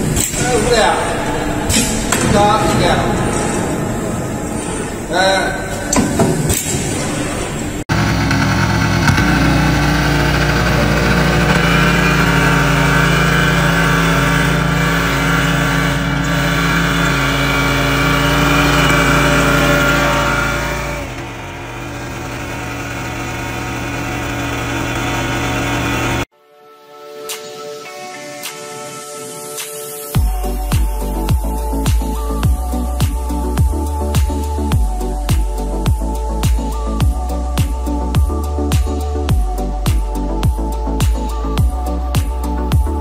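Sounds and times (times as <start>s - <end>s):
tiller engine running: 7.9s - 26.3s.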